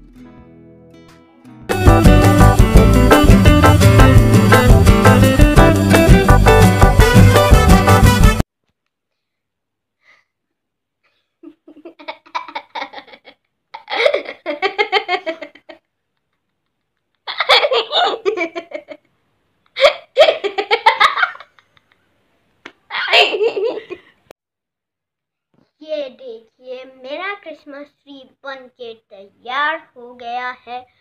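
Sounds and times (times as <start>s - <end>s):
boy laughing hard: 11.4s - 15.8s, 17.2s - 19.1s, 19.7s - 22.0s, 22.9s - 24.2s.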